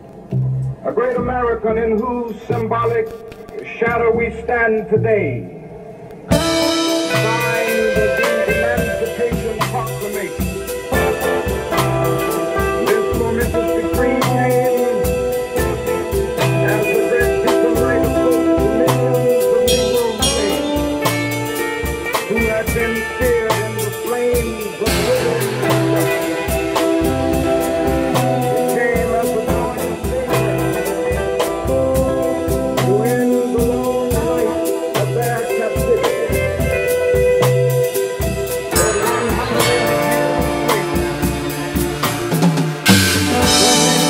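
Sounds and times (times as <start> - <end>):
keyboard chords: 5.0 - 44.0
electric guitar: 5.5 - 44.0
drum kit with cymbals: 6.2 - 44.0
low bass note: 38.7 - 44.0.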